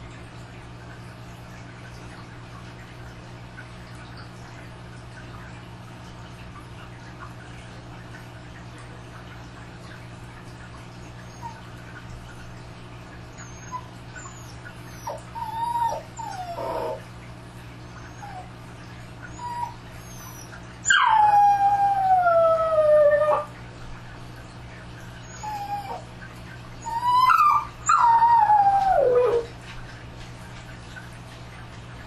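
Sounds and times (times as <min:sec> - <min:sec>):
dog howling and whining: 0:13.4 - 0:17.1, 0:19.3 - 0:23.6, 0:25.2 - 0:26.1, 0:26.8 - 0:29.6.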